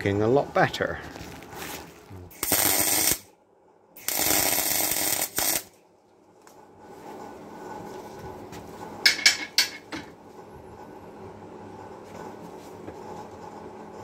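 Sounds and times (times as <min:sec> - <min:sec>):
arc welding: 0:02.3 - 0:03.3, 0:04.0 - 0:05.8.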